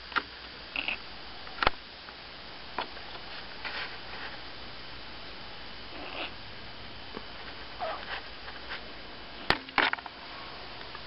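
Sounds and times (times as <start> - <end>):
faint kitten mew: 7.8 - 8.1.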